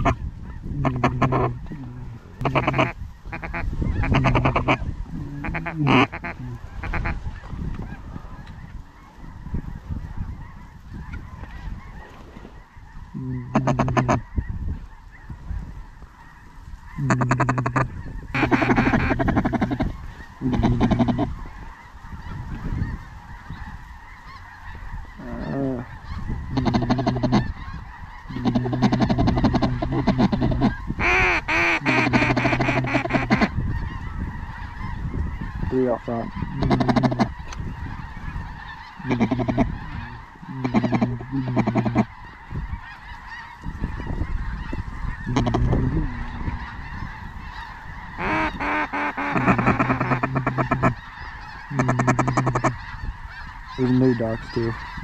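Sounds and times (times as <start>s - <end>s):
waterfowl calling: 0.0s - 55.0s.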